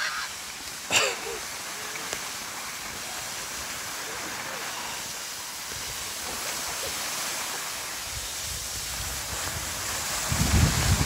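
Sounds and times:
skis sliding over snow: 0.0 - 11.0
wind rumbling on microphone: 5.0 - 11.0.

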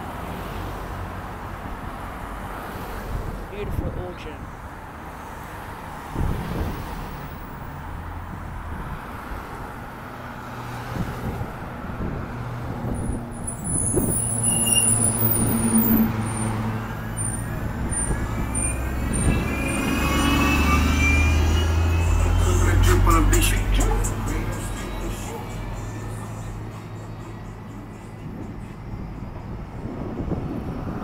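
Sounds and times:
street traffic: 0.0 - 31.0
bus engine drone: 6.2 - 31.0
rising engine whine: 13.6 - 31.0.

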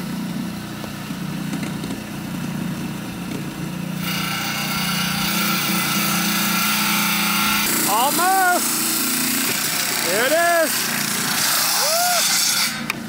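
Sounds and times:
wet saw motor humming: 0.0 - 13.0
hiss of stone being cut: 4.0 - 13.0.

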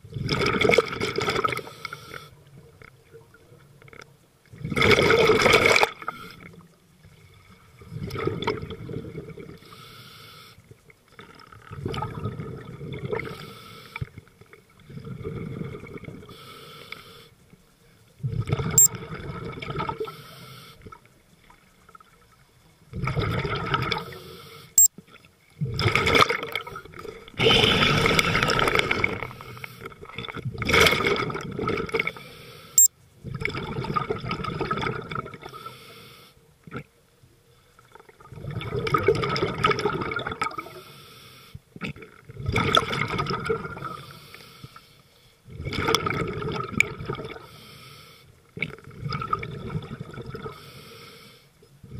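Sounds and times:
air bubbles: 25.6 - 29.3
diver breathing through regulator: 50.5 - 51.6.

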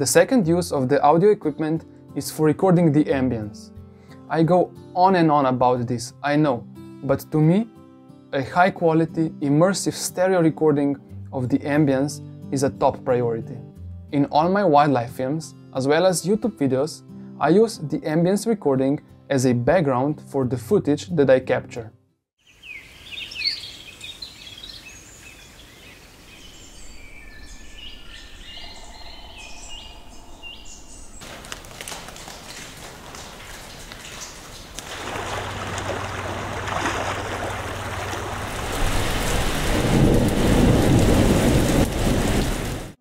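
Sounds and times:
small birds chirping: 22.4 - 31.2
thunder rumble: 28.6 - 43.0
heavy rain: 31.2 - 43.0.

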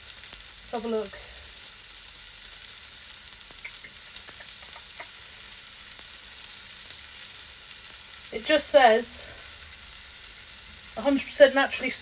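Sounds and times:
fish sizzling in a pan: 0.0 - 12.0
small pops and crackles: 2.6 - 8.1.

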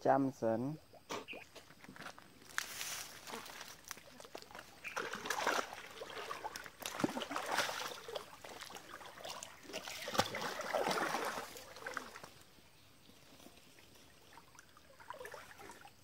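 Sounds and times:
water splashing around wading legs: 2.9 - 12.6, 13.6 - 16.0.

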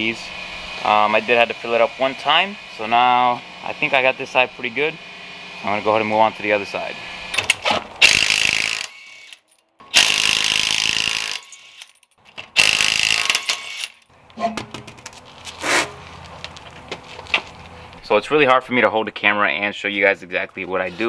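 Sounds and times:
wheel knocks and clatter: 14.4 - 17.6.

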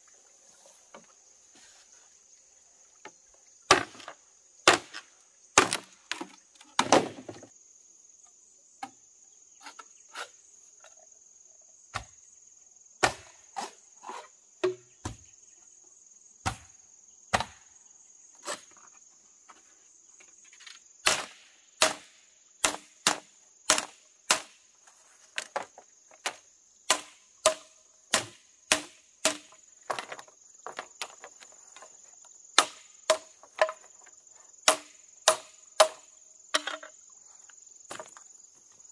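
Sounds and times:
high insect drone: 0.0 - 38.9
hand tool striking wood: 3.7 - 4.1, 21.0 - 24.5, 26.2 - 31.2, 32.6 - 33.9, 34.6 - 36.9.

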